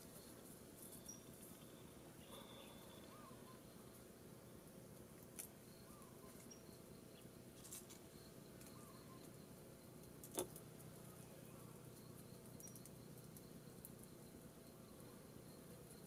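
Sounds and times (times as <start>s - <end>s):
faint short chirps: 0.8s - 3.6s.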